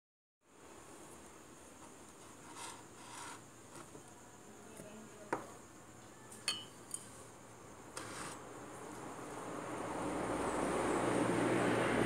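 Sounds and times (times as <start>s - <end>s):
crockery rubbing on tabletop: 1.8s - 4.0s, 8.0s - 8.4s
ringing clink: 6.4s - 7.1s.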